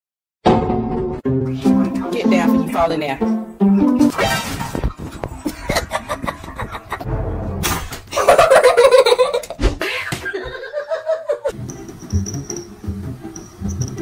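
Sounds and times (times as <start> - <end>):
knocks and clatter: 4.4 - 7.1
person laughing: 5.0 - 7.1, 8.1 - 11.6.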